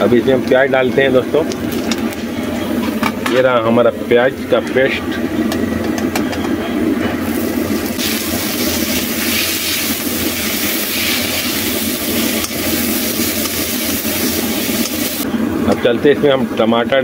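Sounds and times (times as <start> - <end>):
steady low hum: 0.0 - 17.0
onions sizzling in hot oil: 7.2 - 15.2.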